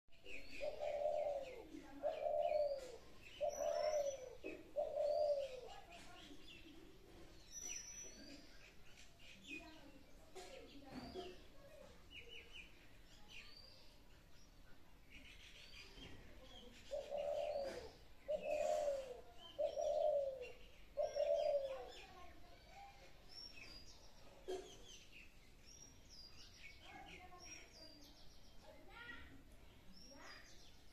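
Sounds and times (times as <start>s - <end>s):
small birds chirping: 0.1s - 30.9s
dove cooing: 0.4s - 5.9s, 16.9s - 22.0s.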